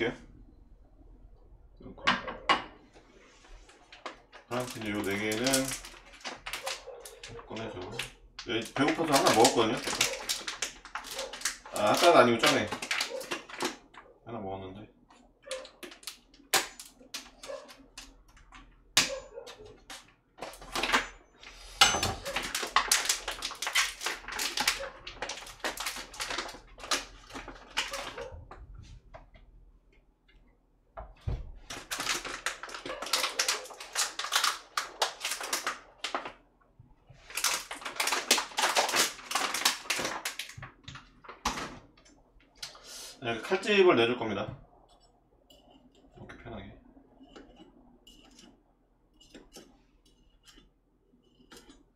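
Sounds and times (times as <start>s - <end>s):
food packaging crinkling: 3.4s - 14.0s, 15.2s - 18.8s, 19.4s - 28.6s, 31.6s - 36.4s, 37.2s - 42.8s.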